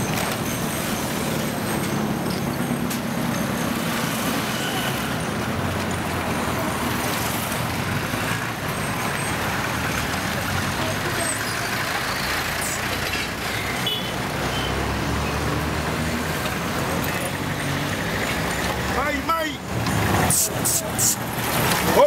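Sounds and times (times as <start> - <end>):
car engines passing: 0.0 - 22.0.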